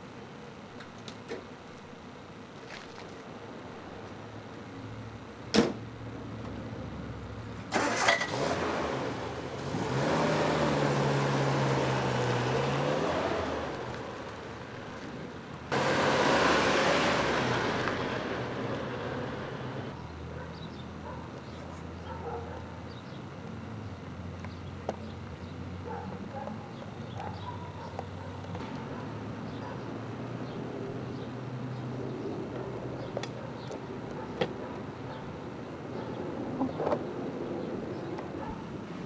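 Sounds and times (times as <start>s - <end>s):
engine and road noise surge: 3.3s - 39.0s
car engine starting and running: 6.9s - 20.0s.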